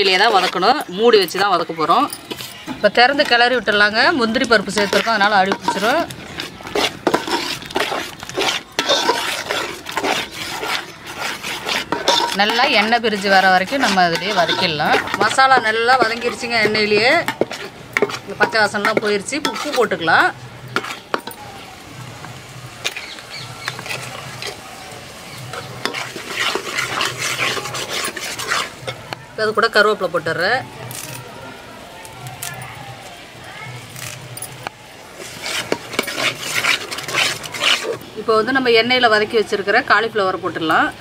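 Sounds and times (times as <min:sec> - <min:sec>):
metal ladle scraping a pot: 0:00.0 - 0:21.4, 0:22.8 - 0:29.2, 0:35.1 - 0:38.2
ladle clinking against pot: 0:11.9 - 0:19.9.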